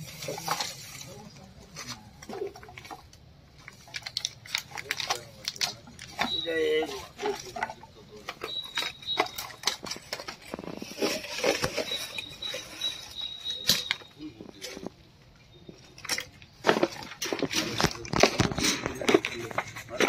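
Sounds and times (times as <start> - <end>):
plastic bags and scrap rustling: 0.0 - 20.0
faint high steady tone: 6.1 - 16.3.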